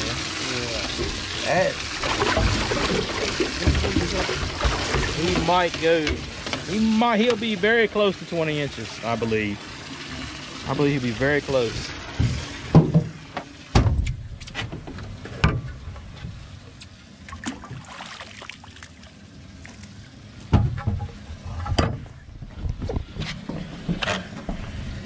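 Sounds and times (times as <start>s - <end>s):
wind and water hiss: 0.0s - 22.0s
knocks and thumps on boat deck: 2.0s - 7.4s, 12.1s - 16.4s, 20.5s - 24.8s.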